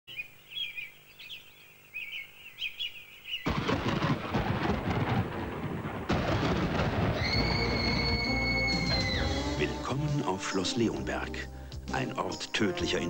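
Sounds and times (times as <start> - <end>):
birds chirping: 0.1 - 3.6
thunder rumbling: 3.5 - 9.5.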